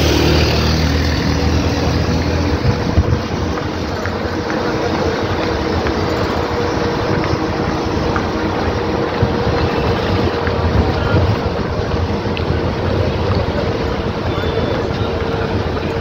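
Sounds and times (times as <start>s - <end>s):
bus engine drone: 0.0s - 16.0s
road rumble: 0.0s - 16.0s
wind buffeting microphone: 0.0s - 16.0s.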